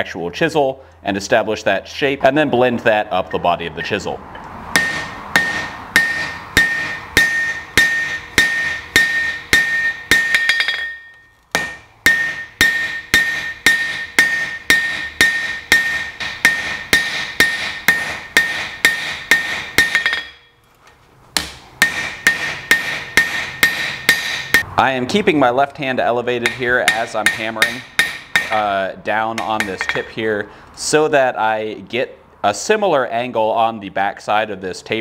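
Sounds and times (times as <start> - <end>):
hammer striking steel on anvil: 4.7 - 20.5, 21.4 - 24.7, 26.4 - 30.2.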